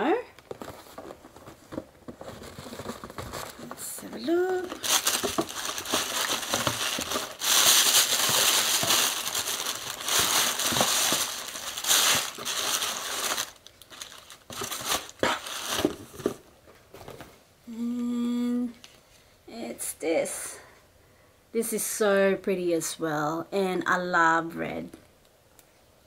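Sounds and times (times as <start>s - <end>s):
tissue paper and plastic crinkling: 0.4s - 16.4s.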